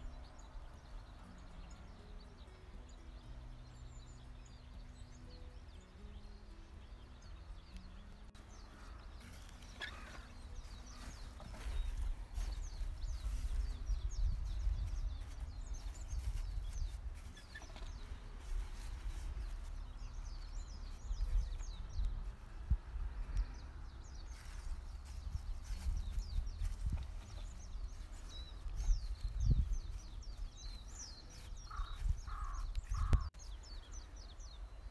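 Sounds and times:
small birds chirping: 0.0 - 34.9
wind buffeting microphone: 10.6 - 34.6.

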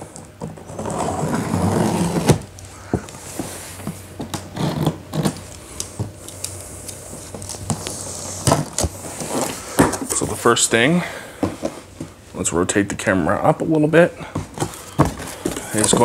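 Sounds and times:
cardboard box scraping: 0.6 - 2.5, 7.8 - 9.8.

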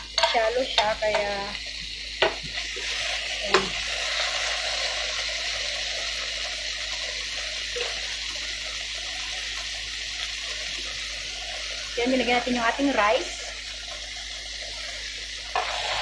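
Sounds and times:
food sizzling in a wok: 0.0 - 16.0
spoon knocking against pan: 2.2 - 2.5.

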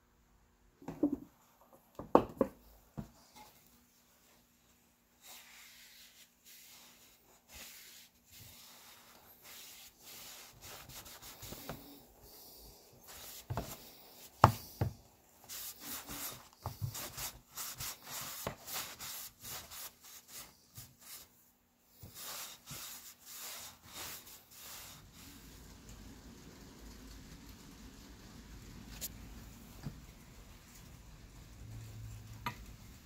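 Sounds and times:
cloth rubbing on wood: 5.2 - 21.3, 21.9 - 25.6.

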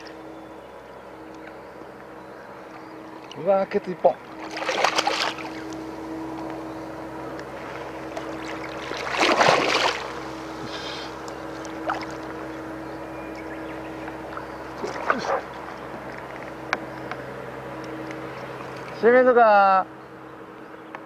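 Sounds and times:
boat motor hum: 0.0 - 21.0
water washing along hull: 2.6 - 19.2.

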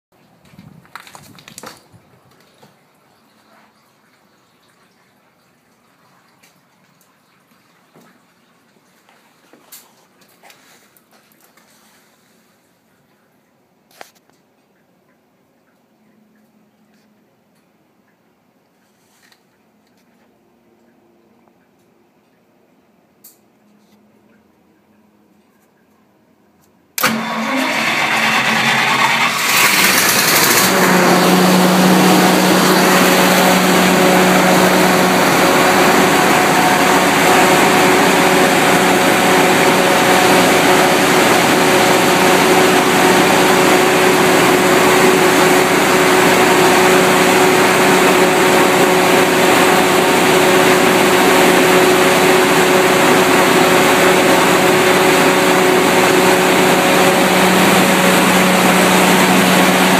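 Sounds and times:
generator engine starting and running: 26.9 - 59.9.

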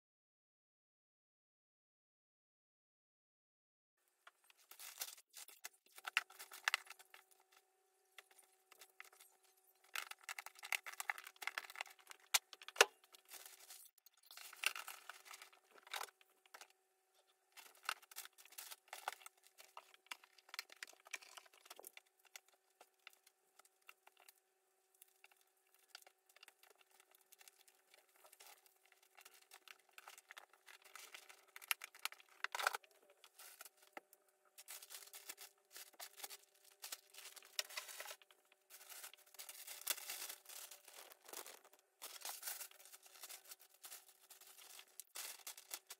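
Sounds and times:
objects rustling: 8.2 - 16.7, 26.6 - 45.9.

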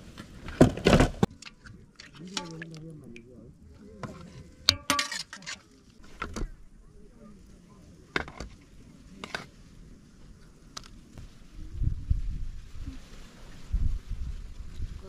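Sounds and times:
utensils and dishes clinking: 4.7 - 5.6.

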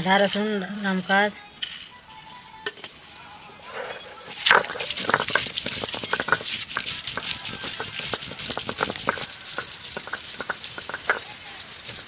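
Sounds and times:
stone grinding on stone slab: 3.8 - 12.0.

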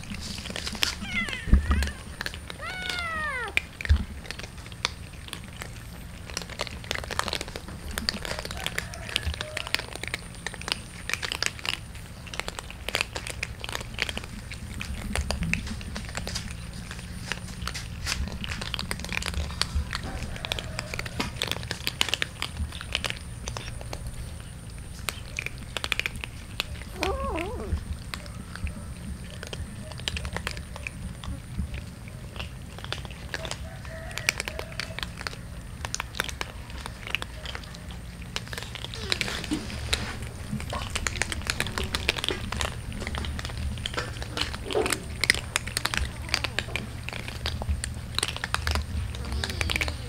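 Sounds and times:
cats crunching dry kibble: 0.0 - 50.0
cat meowing: 0.8 - 3.7, 26.9 - 27.8.

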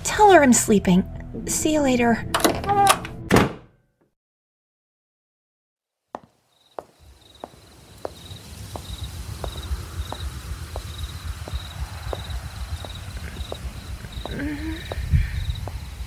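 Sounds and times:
footsteps walking: 6.1 - 16.0
crickets chirping: 6.2 - 16.0
low rumble: 7.8 - 16.0.

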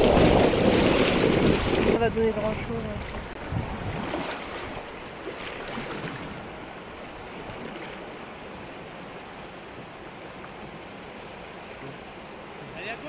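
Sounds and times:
short splashes: 0.0 - 8.3
river water rushing: 0.0 - 13.0
water lapping against kayak hull: 0.0 - 13.0.

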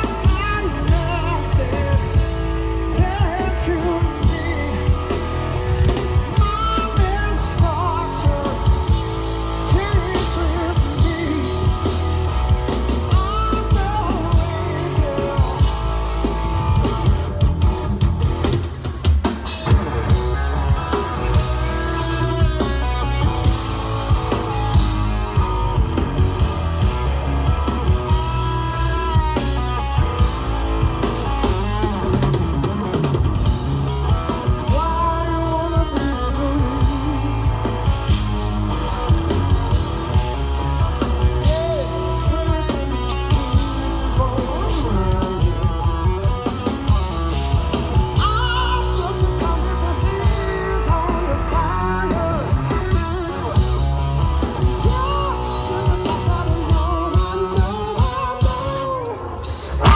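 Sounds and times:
person singing lead vocals: 0.0 - 17.5, 33.9 - 59.9
bass guitar: 0.0 - 59.9
drum kit: 0.0 - 59.9
electric guitar: 0.0 - 59.9.

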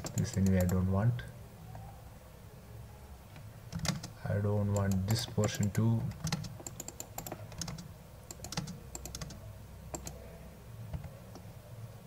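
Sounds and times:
keyboard keys clicking: 0.0 - 0.8, 3.7 - 10.2
faint low hum: 0.0 - 12.0.

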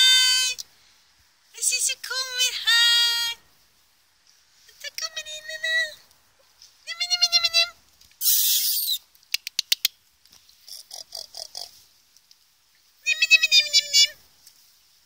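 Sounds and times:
burst of hiss: 8.2 - 9.0
quick clicks: 8.4 - 10.0.

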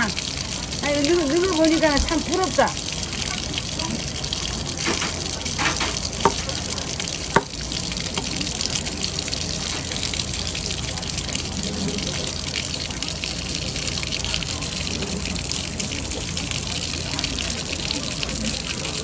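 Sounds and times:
tap water pouring onto board: 0.0 - 19.0
knife knocking on board: 6.2 - 6.5.

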